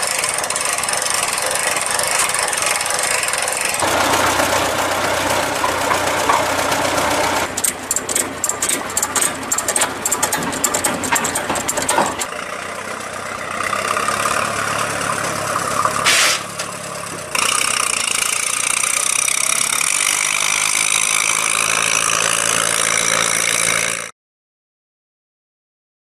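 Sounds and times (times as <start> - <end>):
tractor engine running: 0.0 - 24.1
short loud burst of noise: 16.0 - 16.6.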